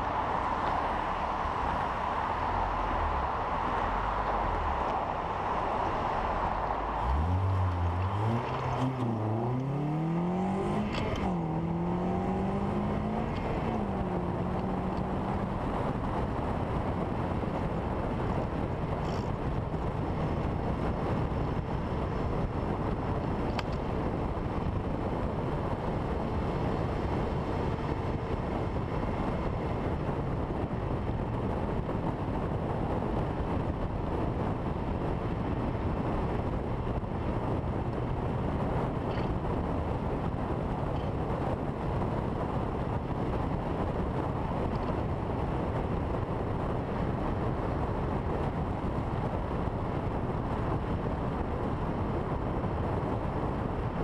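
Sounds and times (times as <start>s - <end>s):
car engine revving: 0.0s - 16.3s
wind and road noise: 0.0s - 54.0s.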